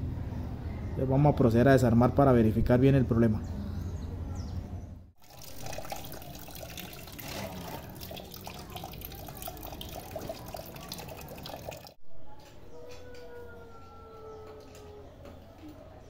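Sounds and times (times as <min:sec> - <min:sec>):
coolant splattering into metal pan: 0:05.2 - 0:11.9.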